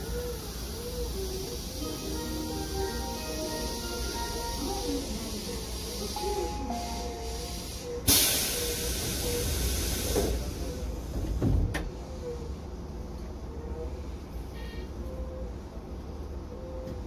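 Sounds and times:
compressed air hiss: 0.0s - 11.1s.

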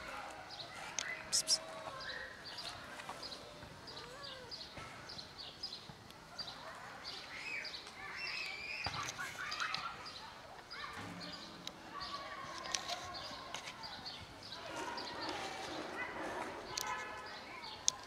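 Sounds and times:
small bird chirping: 0.9s - 2.7s.

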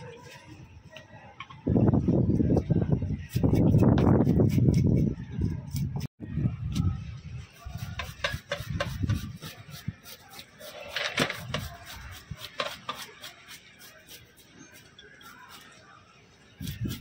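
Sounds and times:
knife scraping fish scales: 7.6s - 15.8s.

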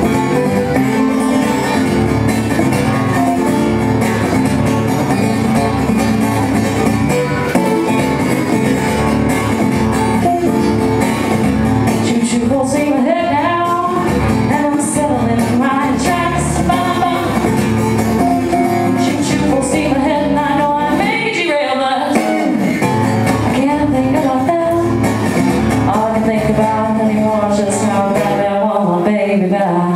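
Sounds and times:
strummed acoustic guitars: 0.0s - 29.9s
person singing: 11.9s - 22.7s, 23.5s - 25.0s, 25.8s - 29.9s.

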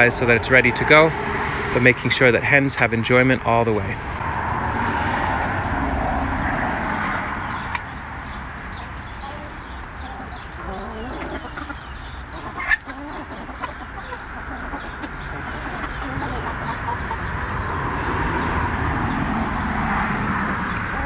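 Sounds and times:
hens clucking softly: 8.7s - 21.0s.

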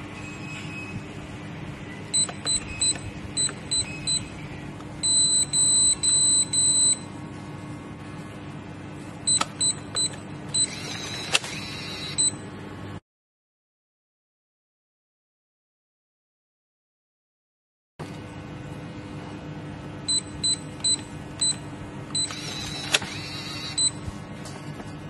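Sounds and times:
longer beeps: 2.1s - 4.3s, 5.0s - 7.1s, 9.3s - 12.4s, 20.1s - 21.6s, 22.2s - 24.0s
keypad beeps: 2.1s - 4.4s, 5.0s - 7.1s, 9.3s - 12.4s, 20.1s - 24.0s
lock motor whirring: 9.3s - 12.3s, 20.8s - 24.0s.

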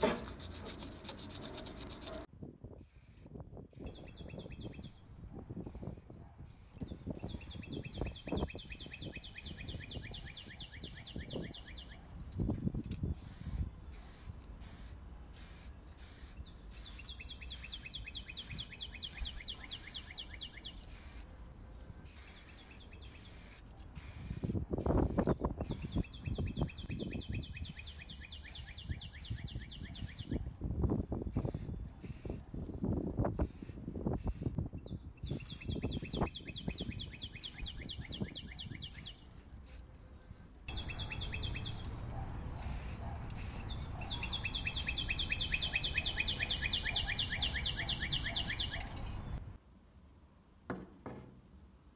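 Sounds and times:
spray paint can hissing: 0.0s - 5.0s, 5.6s - 11.5s, 12.7s - 21.3s, 22.0s - 30.5s, 31.1s - 34.6s, 35.2s - 39.9s, 42.6s - 49.2s
bird trilling: 43.6s - 49.0s.

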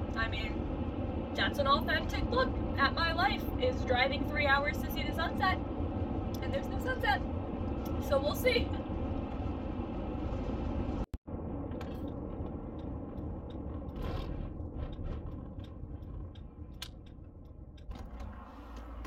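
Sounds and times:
road and engine rumble in car: 0.0s - 19.0s.

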